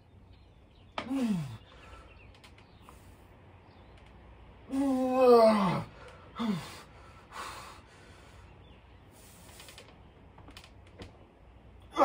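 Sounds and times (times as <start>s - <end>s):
man groaning with effort: 1.0s - 1.6s, 4.7s - 6.8s
man grunting: 4.7s - 6.8s.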